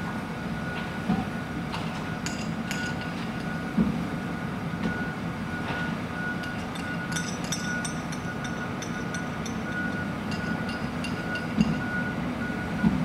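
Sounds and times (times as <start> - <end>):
freight train rumbling: 0.0 - 13.0
metallic clinks: 2.2 - 3.6, 6.3 - 12.0.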